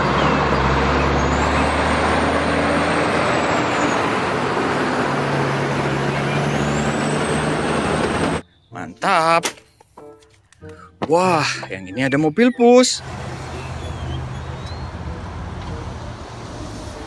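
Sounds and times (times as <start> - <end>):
truck engine drone: 0.0 - 8.7, 13.0 - 17.0.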